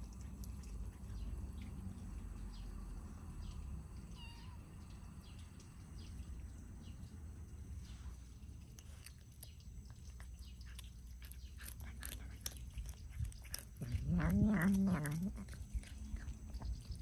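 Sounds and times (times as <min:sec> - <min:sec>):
kittens crunching food: 0:00.0 - 0:02.1, 0:07.9 - 0:17.0
kitten mewing: 0:13.5 - 0:15.6.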